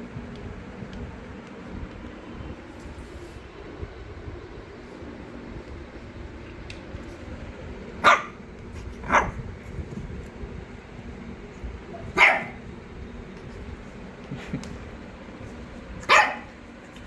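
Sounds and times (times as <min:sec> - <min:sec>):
puppy barking: 0:08.0 - 0:08.4, 0:09.0 - 0:09.4, 0:12.0 - 0:12.6, 0:16.0 - 0:16.6.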